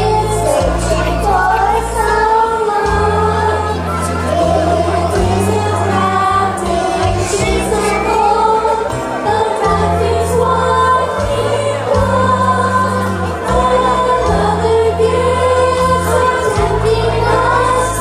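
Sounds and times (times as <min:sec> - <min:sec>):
group singing together: 0:00.0 - 0:18.0
keyboard bass notes: 0:00.0 - 0:18.0.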